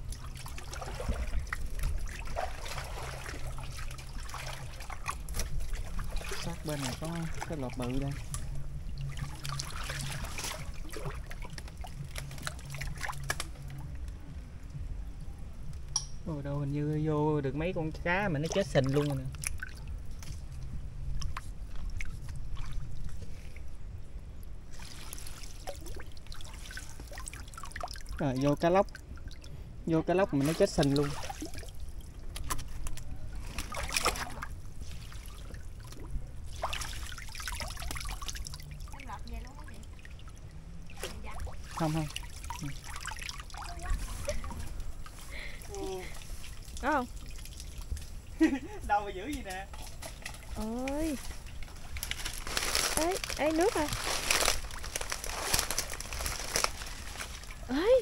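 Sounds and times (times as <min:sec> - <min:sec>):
shallow water sloshing: 0:00.0 - 0:14.0, 0:18.0 - 0:58.0
small splashes and clicks: 0:00.0 - 0:14.2, 0:18.5 - 0:23.6, 0:30.4 - 0:45.2, 0:49.2 - 0:58.0.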